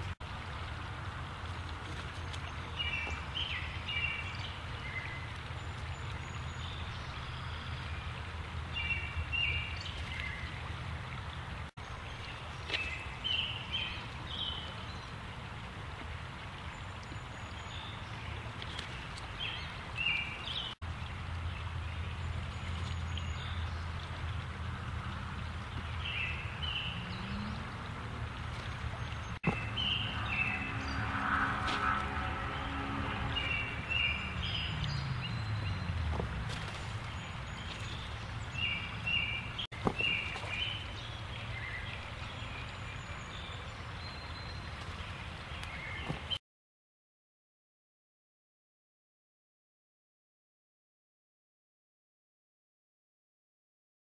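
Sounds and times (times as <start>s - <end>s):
river water flowing: 0.0s - 46.4s
low hum: 20.9s - 38.6s.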